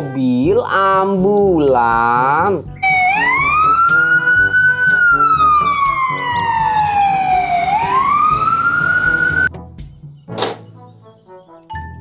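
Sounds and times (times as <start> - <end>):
children's music: 0.0 - 12.0
ambulance siren wailing: 2.8 - 9.5.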